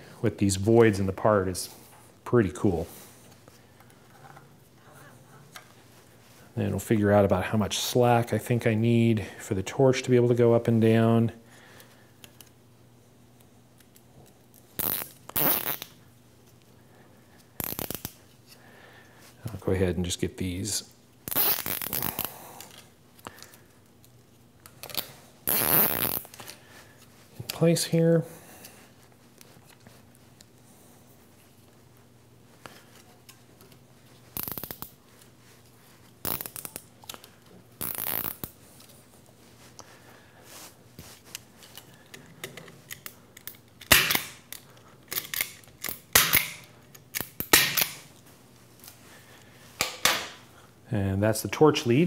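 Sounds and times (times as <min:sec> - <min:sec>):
zip ties snapping and clicking: 0:13.8 - 0:16.0, 0:17.6 - 0:18.2, 0:21.2 - 0:26.6, 0:34.3 - 0:35.0, 0:36.2 - 0:38.9, 0:42.8 - 0:48.0
zip ties ratcheting tight: 0:14.8 - 0:15.9, 0:17.6 - 0:18.2, 0:21.2 - 0:22.3, 0:24.8 - 0:26.4, 0:34.4 - 0:34.9, 0:36.2 - 0:36.9, 0:37.8 - 0:38.6.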